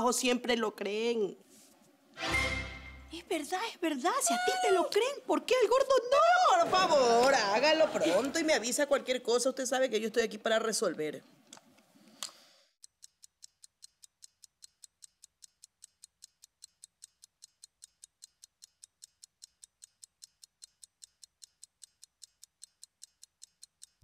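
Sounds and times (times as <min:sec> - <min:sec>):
clock ticking quickly: 0:12.8 - 0:24.0.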